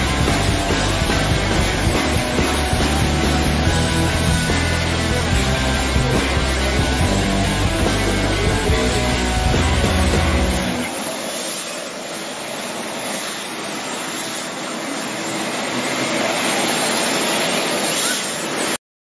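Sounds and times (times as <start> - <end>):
rock song: 0.0 - 11.1
small electric motors whirring: 0.0 - 18.8.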